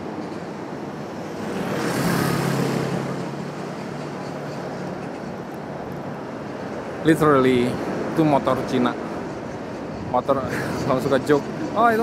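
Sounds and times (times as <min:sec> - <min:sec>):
vehicle passing close by: 0:01.2 - 0:03.9.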